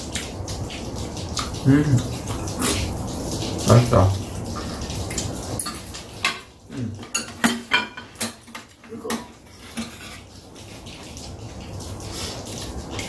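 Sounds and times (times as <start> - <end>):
utensils clinking against bowls: 5.6 - 10.3.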